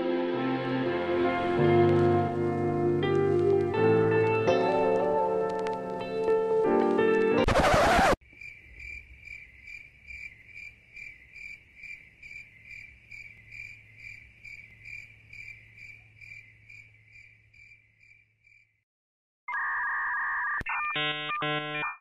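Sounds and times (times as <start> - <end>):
cricket chirping: 8.2 - 18.8
electronic beeping tone: 19.5 - 22.0.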